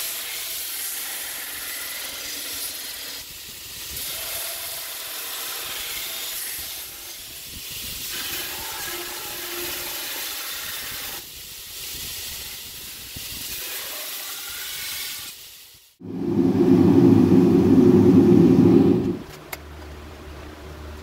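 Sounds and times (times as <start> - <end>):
gas forge burner roaring: 16.0 - 19.4.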